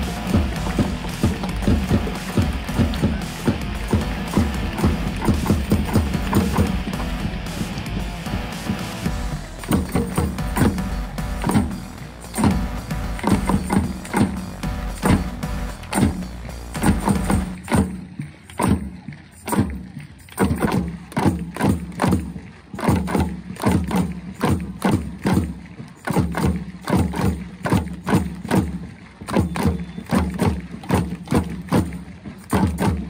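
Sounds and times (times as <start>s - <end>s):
crowd drum hits: 0.0s - 33.0s
crowd hand claps: 0.0s - 33.0s.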